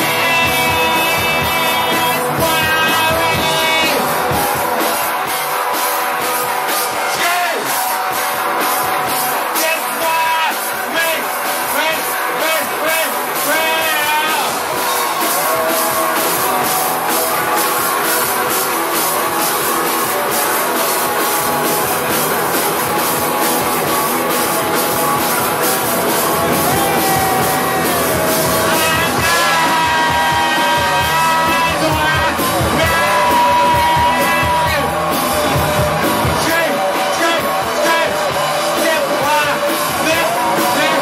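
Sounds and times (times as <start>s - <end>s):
drum kit beating: 0.0s - 41.0s
electric guitars: 0.0s - 41.0s
person singing long notes: 26.3s - 36.4s.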